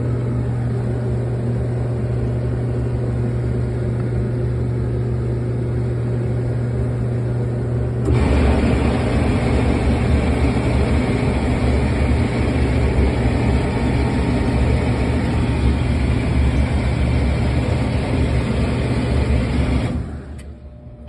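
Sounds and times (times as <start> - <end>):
pump motor humming: 8.0 - 21.0.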